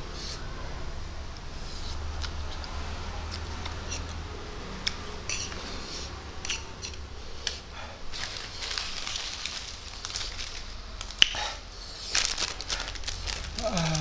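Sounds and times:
fork scraping a plate: 0:05.3 - 0:07.0.

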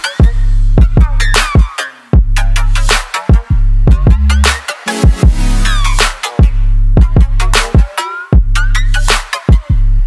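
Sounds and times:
electronic music: 0:00.0 - 0:10.0
heavy bass: 0:00.2 - 0:01.6, 0:02.2 - 0:10.0
punchy kick drum hits: 0:05.0 - 0:07.4.

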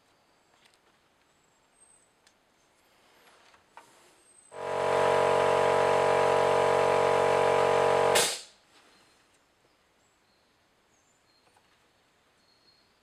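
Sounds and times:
motor-driven machine running: 0:04.6 - 0:08.5
short sharp burst of noise: 0:04.6 - 0:08.6.

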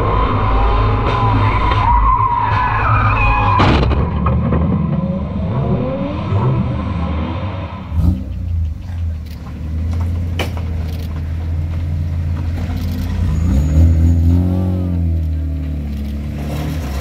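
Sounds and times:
tyres skidding: 0:00.0 - 0:17.0
car engine running hard: 0:05.1 - 0:17.0.

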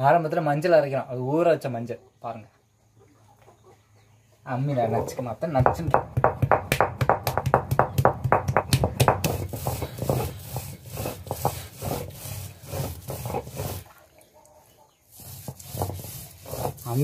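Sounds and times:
stone grinding on stone: 0:09.0 - 0:13.9, 0:15.1 - 0:17.0.

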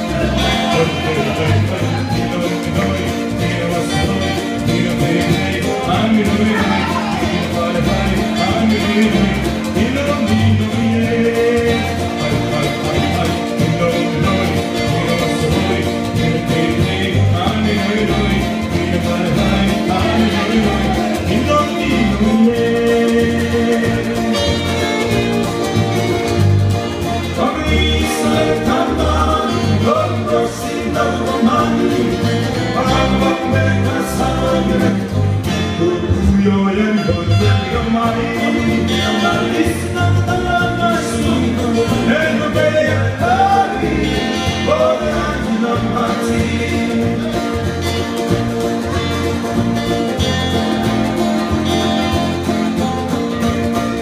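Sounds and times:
person singing: 0:00.0 - 0:26.2, 0:27.2 - 0:48.2
string band playing: 0:00.0 - 0:54.0.

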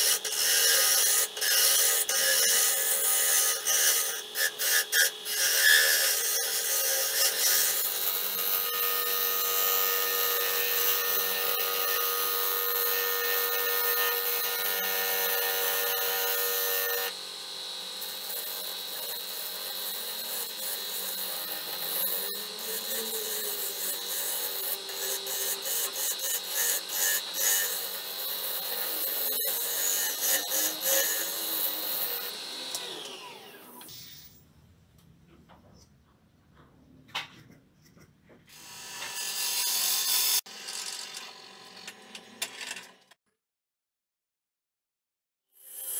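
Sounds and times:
lathe tool cutting wood: 0:00.0 - 0:33.9.

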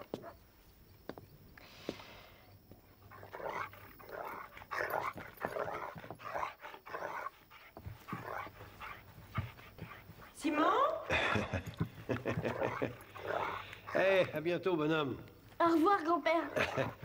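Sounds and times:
puppy growling: 0:03.0 - 0:14.4, 0:16.3 - 0:17.0.

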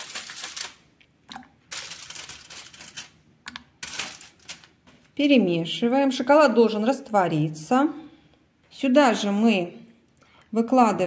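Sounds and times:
foil wrapper crinkling: 0:00.0 - 0:03.2, 0:03.8 - 0:04.8.

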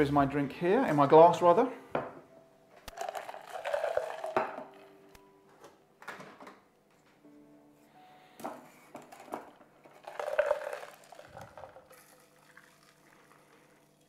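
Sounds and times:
ice clattering in metal tin: 0:02.9 - 0:04.6, 0:09.1 - 0:14.0
drink pouring through strainer: 0:02.9 - 0:04.8, 0:09.1 - 0:14.0.

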